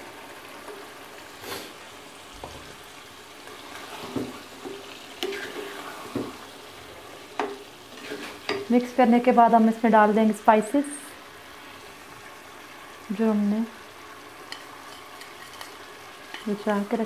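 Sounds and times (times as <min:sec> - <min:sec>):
food sizzling in pan: 0:00.0 - 0:17.0
spatula scraping and knocking pan: 0:03.4 - 0:08.7, 0:14.4 - 0:16.5.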